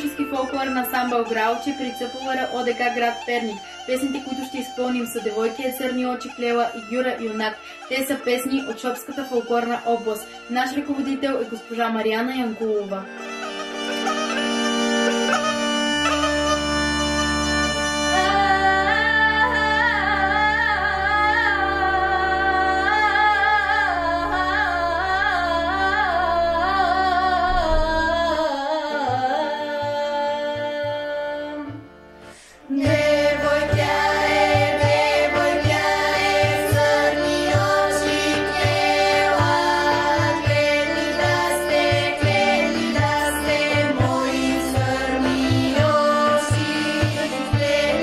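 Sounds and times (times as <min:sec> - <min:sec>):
instrumental drone backing: 0:12.7 - 0:27.5, 0:31.7 - 0:48.0
rhythmic beat: 0:13.2 - 0:18.2
girls singing in unison: 0:32.7 - 0:48.0.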